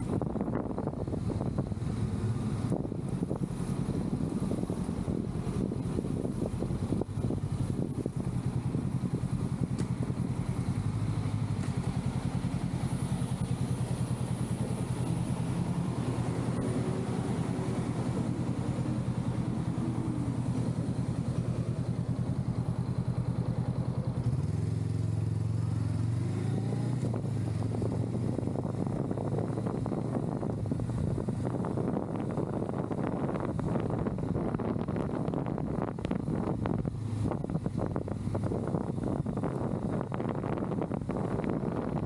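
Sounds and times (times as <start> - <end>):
motorcycle engine running: 0.0 - 42.0
wind and road noise: 0.0 - 42.0.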